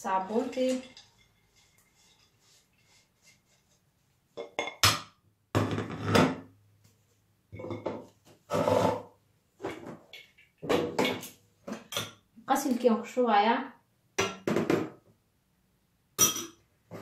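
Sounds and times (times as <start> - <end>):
kitchenware scraping and clattering: 0.0 - 5.0, 5.6 - 6.5, 7.5 - 12.3, 16.2 - 17.0.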